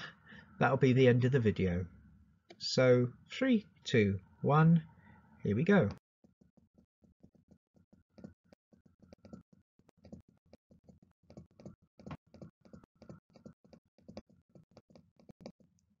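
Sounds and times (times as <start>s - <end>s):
rapid irregular clicking: 5.9s - 16.0s.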